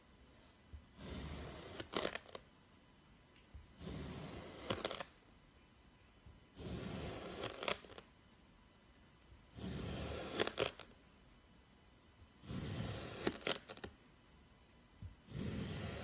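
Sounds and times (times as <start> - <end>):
knife slicing kinetic sand: 0.9 - 2.4, 3.7 - 5.2, 6.5 - 8.0, 9.5 - 10.9, 12.4 - 13.9, 15.2 - 16.0.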